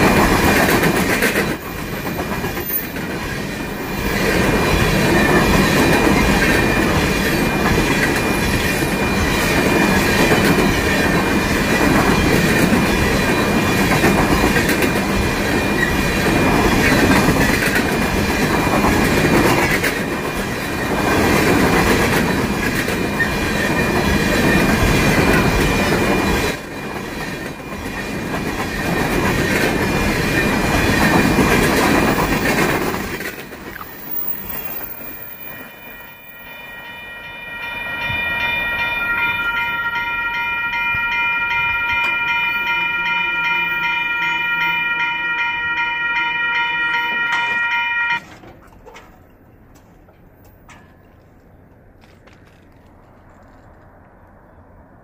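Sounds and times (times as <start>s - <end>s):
clickety-clack over rail joints: 0.0s - 35.4s, 47.0s - 54.4s
train wheels rumbling on rails: 0.0s - 55.0s
high wheel squeal: 33.7s - 41.0s.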